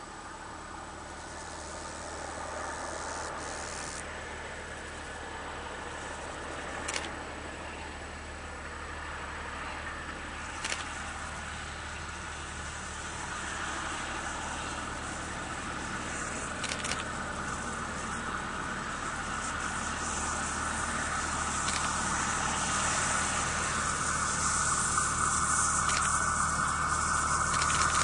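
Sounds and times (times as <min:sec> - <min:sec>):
diesel locomotive engine running: 0:00.0 - 0:28.0.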